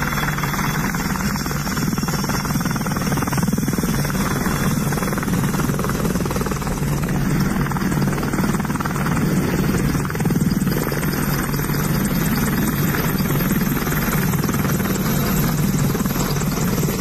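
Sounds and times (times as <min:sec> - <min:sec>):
helicopter engine noise: 0:00.0 - 0:17.0
helicopter rotor chop: 0:00.0 - 0:17.0.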